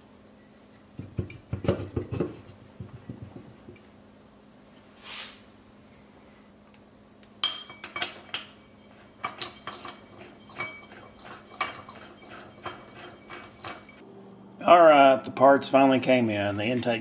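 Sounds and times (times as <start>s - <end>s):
metal tools clinking and clanking: 7.4s - 14.0s.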